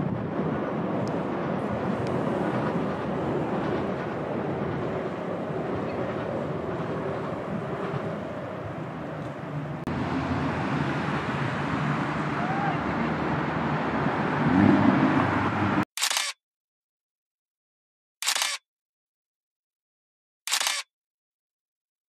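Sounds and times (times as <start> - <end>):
low traffic rumble: 0.0 - 15.9.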